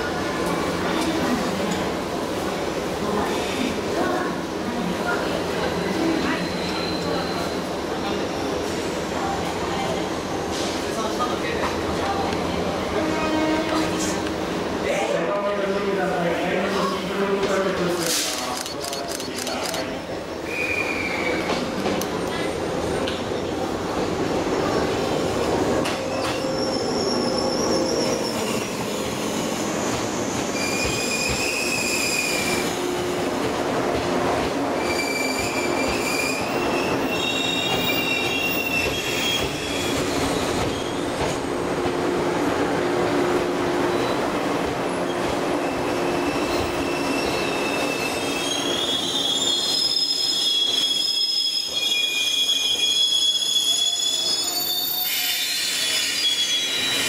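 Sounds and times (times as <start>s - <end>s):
high-pitched wheel squeals: 45.6s - 57.0s.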